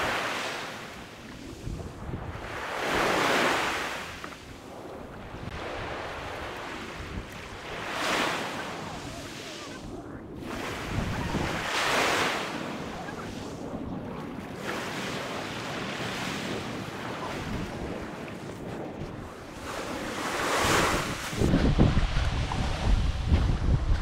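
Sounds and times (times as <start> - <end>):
waves breaking on pebble beach: 0.0 - 4.9, 5.5 - 18.8.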